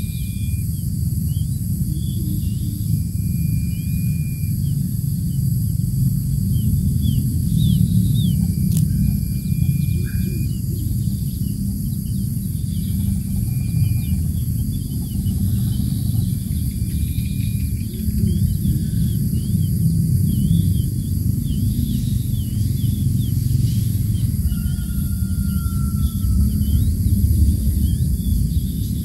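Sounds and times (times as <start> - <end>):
faint high chirps: 0.0 - 29.0
steady low rumble: 0.0 - 29.0
thin whistles: 2.6 - 4.7, 7.7 - 11.0.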